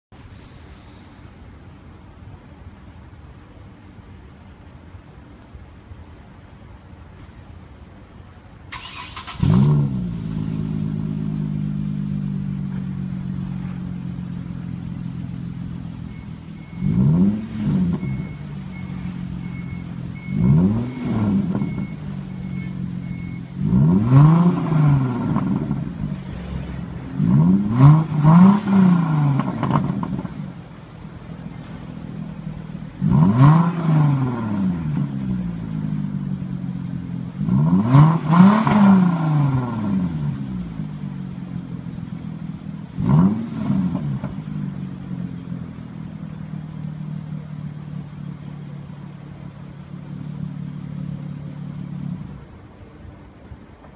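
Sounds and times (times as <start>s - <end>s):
car engine starting and idling: 0.2s - 53.9s
engine revving: 8.7s - 13.8s, 16.1s - 30.6s, 32.9s - 36.1s, 37.4s - 40.9s, 42.9s - 45.0s.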